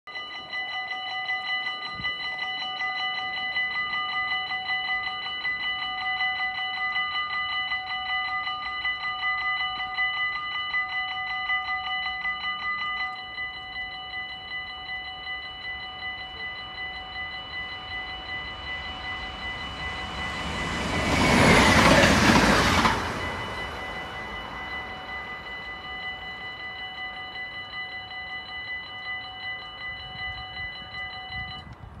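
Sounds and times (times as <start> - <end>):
level-crossing bells ringing: 0.1 - 31.8
train rushing past: 16.8 - 26.6.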